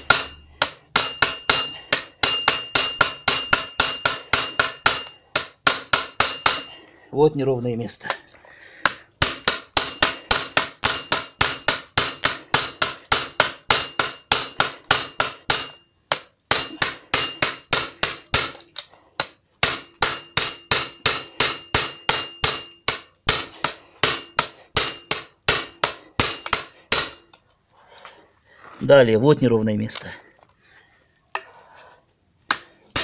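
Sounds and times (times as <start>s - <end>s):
hammer striking sheet metal: 0.0s - 6.8s, 8.8s - 18.6s, 19.2s - 27.3s.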